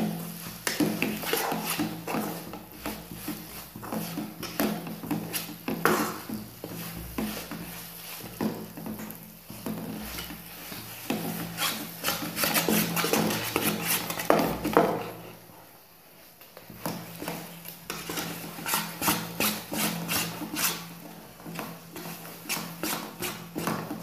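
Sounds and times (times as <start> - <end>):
metal spatula scraping pan: 0.0 - 8.9, 9.6 - 15.3, 17.9 - 21.1.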